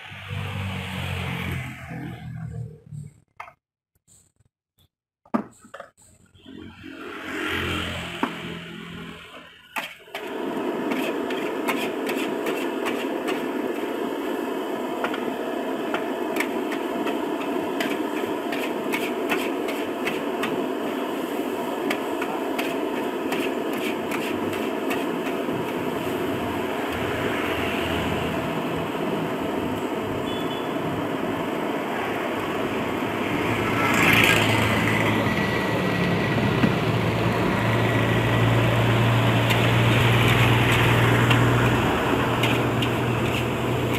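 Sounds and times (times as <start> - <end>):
rice sizzling: 9.8 - 33.2, 37.4 - 43.9
burner hissing: 10.2 - 33.7, 34.7 - 43.9.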